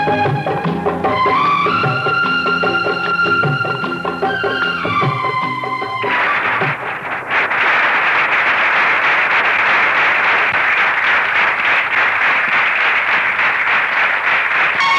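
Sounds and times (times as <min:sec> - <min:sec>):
audience applause: 0:06.0 - 0:14.9.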